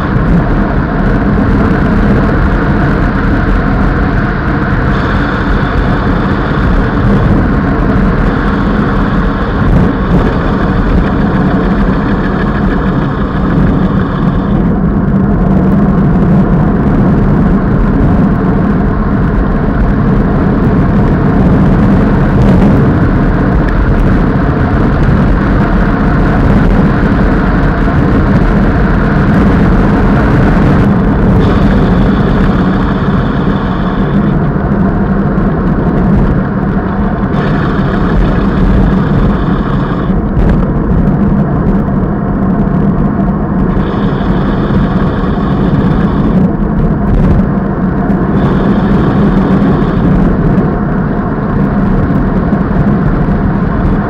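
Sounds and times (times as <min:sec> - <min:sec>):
thin high whir: 0:00.0 - 0:16.6, 0:23.4 - 0:41.9, 0:43.0 - 0:54.0
wind buffeting microphone: 0:00.0 - 0:54.0.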